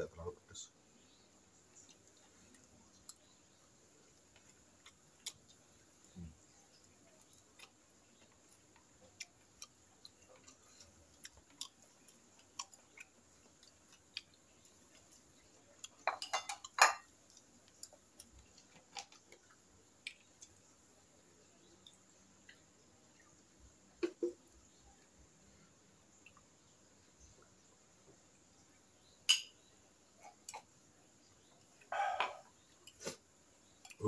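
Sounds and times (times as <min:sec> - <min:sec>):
plates clattering: 0:16.0 - 0:17.1
taps and clinks on ceramic plates: 0:16.0 - 0:17.1, 0:29.3 - 0:29.6.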